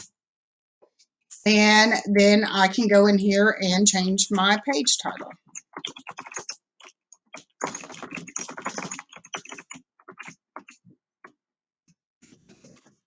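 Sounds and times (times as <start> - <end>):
typing on computer keyboard: 4.9 - 11.4.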